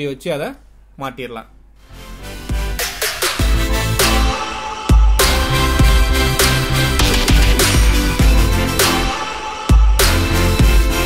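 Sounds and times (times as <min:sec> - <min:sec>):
electronic music with drum beat: 0:02.2 - 0:11.0.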